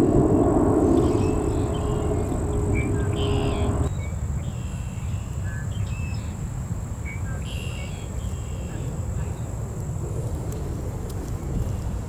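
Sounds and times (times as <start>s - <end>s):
birds chirping: 0.0s - 3.9s
loud hum: 0.0s - 3.9s
low rumble: 0.0s - 3.9s
faint high-pitched whine: 0.0s - 6.4s.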